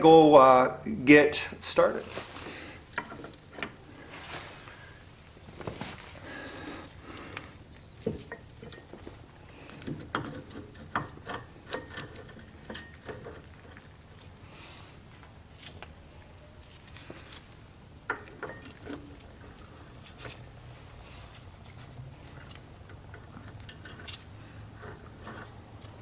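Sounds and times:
metallic clicks and scrapes: 9.7s - 14.3s, 18.1s - 26.0s.

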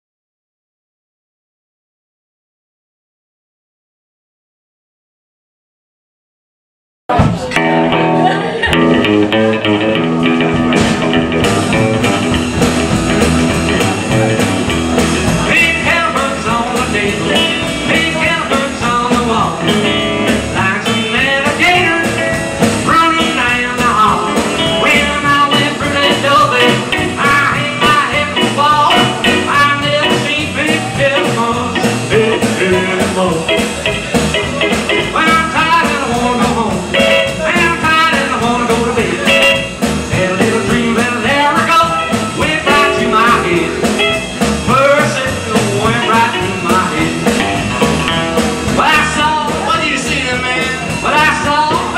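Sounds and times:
rock and roll band playing: 7.1s - 51.9s.

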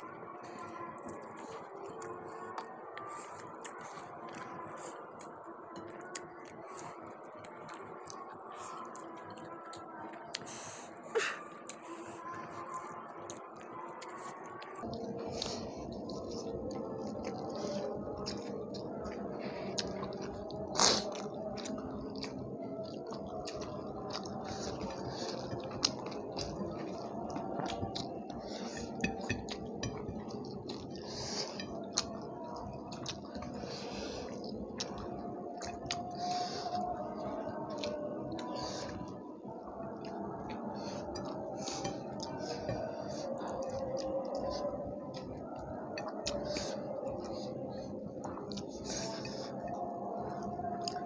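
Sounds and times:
chewing and lip smacks: 11.6s - 51.0s.

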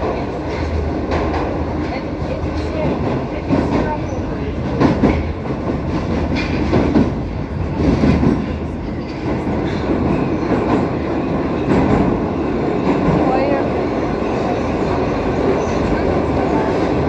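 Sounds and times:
track knocks: 0.0s - 11.0s
metro train wheels rumbling: 0.0s - 17.0s.

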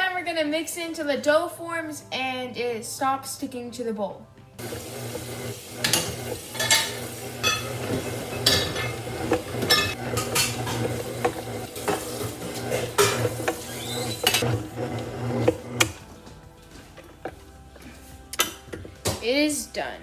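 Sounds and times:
stand mixer motor hum: 4.6s - 16.0s
dough hook clanking in metal bowl: 5.8s - 13.6s.

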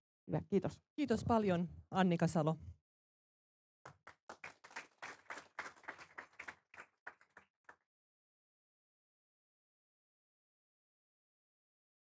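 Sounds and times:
audience applauding: 3.9s - 7.8s.

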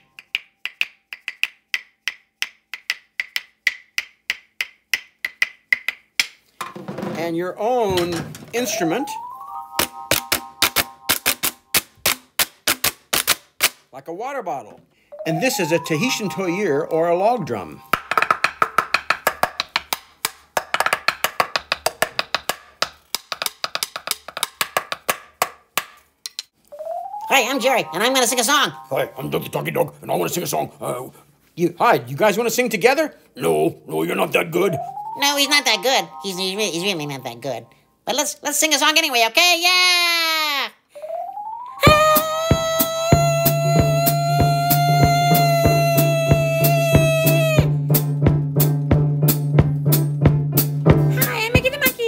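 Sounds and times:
claves clicking: 0.1s - 6.6s, 17.9s - 26.6s.

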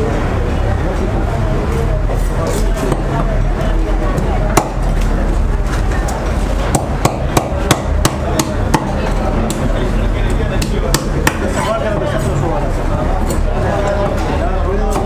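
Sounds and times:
knife chopping fish: 6.7s - 9.7s.

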